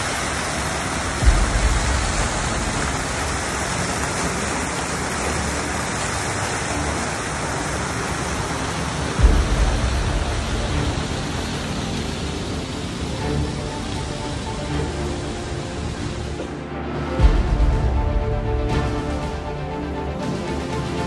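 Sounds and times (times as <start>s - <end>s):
fountain water splashing: 0.0s - 21.0s
low rumbles: 0.8s - 7.0s, 9.2s - 16.2s, 17.1s - 20.0s.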